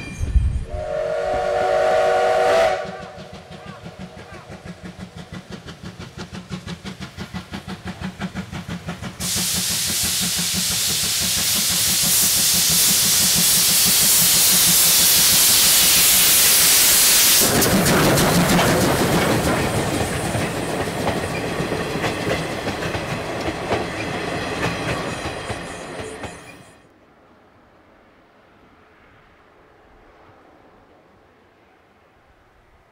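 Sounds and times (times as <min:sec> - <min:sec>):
steam hiss: 0:00.0 - 0:26.6
steam locomotive exhaust chuffs: 0:00.0 - 0:26.8
train wheels and carriages clattering: 0:02.7 - 0:26.8.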